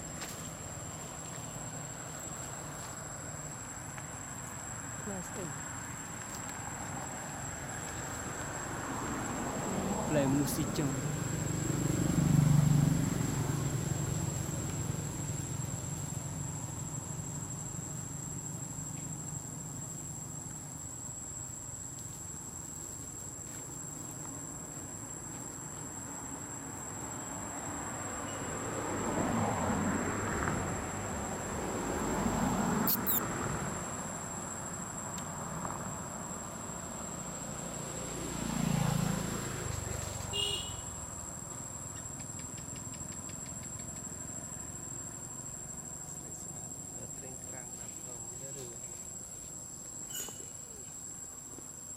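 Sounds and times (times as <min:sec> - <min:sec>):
high-pitched insect drone: 0:32.8 - 0:33.4.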